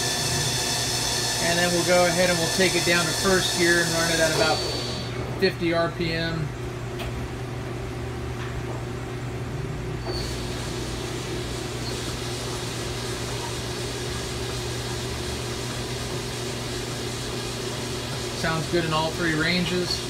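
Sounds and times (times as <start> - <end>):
lathe spindle humming: 0.0 - 5.7, 10.1 - 20.0
chuck turning hiss: 2.3 - 5.2.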